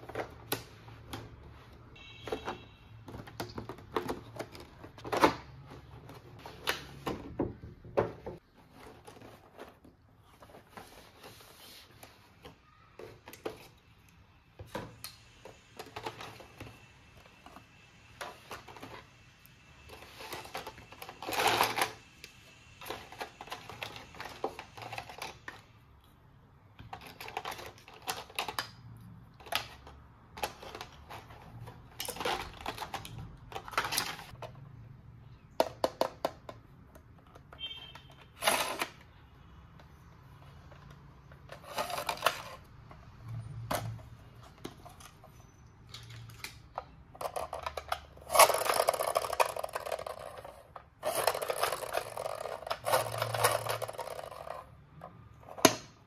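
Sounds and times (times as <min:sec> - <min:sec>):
plastic toy parts clicking: 0:26.8 - 0:34.6, 0:44.6 - 0:54.8.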